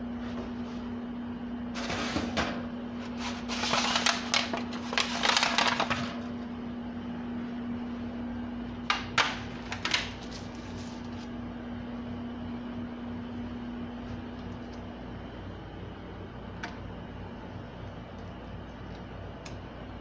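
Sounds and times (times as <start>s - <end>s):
steady low hum: 0.0s - 20.0s
foil pan crinkling on wire rack: 3.1s - 6.2s, 8.9s - 11.3s.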